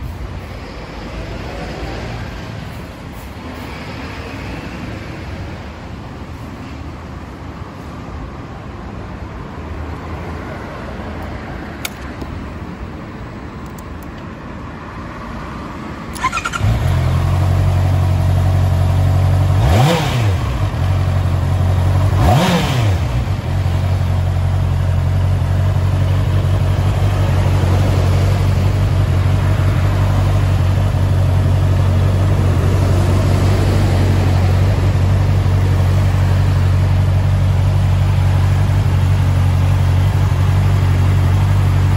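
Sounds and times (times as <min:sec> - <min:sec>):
engine revving: 0:16.1 - 0:17.9, 0:19.3 - 0:21.2, 0:21.8 - 0:23.7
motorcycle engine starting: 0:16.1 - 0:41.9
motorcycle engine idling: 0:16.2 - 0:41.9.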